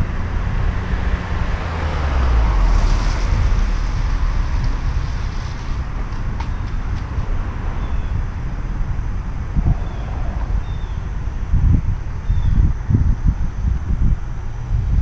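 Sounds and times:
car engine rumbling: 0.0 - 15.0
wind buffeting microphone: 0.0 - 15.0
tyres hissing on wet road: 1.7 - 6.8.

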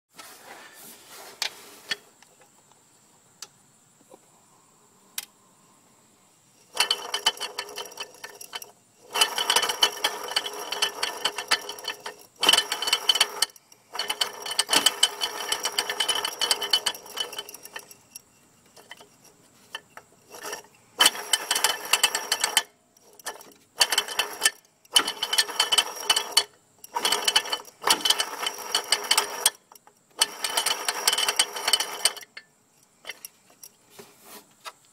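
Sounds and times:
compressor clicking rapidly: 6.7 - 18.2, 20.3 - 32.4.

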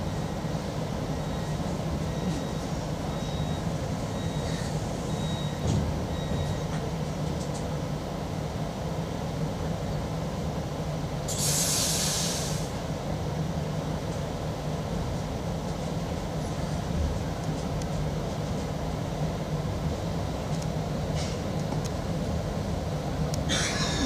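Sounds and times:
train electrical hum: 0.0 - 24.0
compressed air hiss: 11.3 - 12.7.

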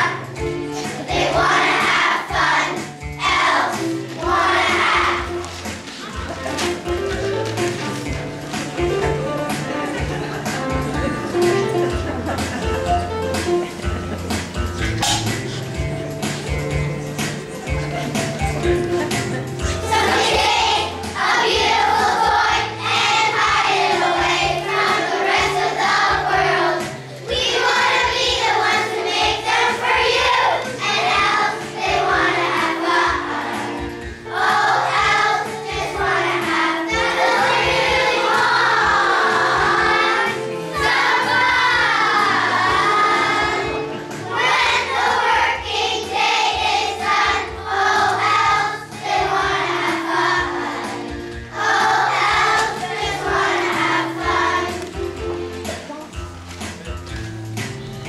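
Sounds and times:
children's choir singing: 0.0 - 12.7, 13.4 - 56.2
instrumental accompaniment: 0.0 - 58.0.

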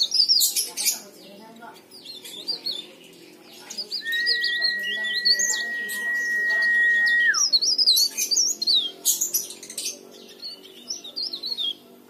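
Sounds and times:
warbler twittering song: 0.0 - 12.0
high whistle sliding down: 4.0 - 7.3.

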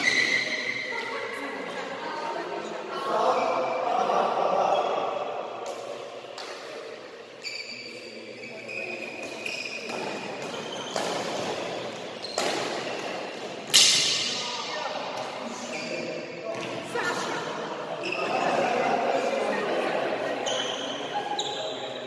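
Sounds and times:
shoes squeaking on floor: 0.0 - 0.9, 7.4 - 13.5, 15.4 - 16.2, 20.4 - 22.0
rackets hitting shuttlecock: 9.2 - 15.4.

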